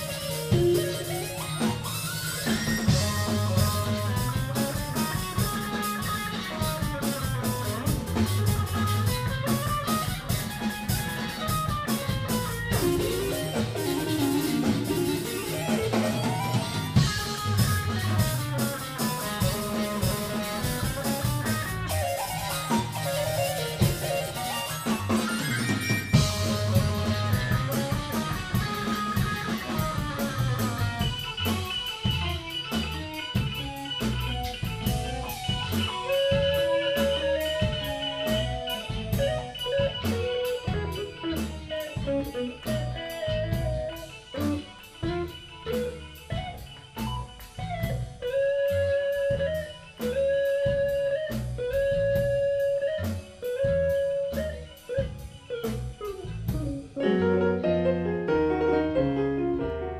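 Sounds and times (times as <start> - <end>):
quick busy drumming: 0.0 - 48.0
rock band playing live: 0.0 - 59.9.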